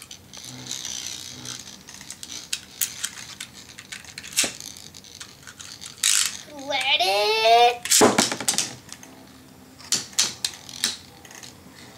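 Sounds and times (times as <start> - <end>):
spinning top parts clicking: 0.0 - 6.9.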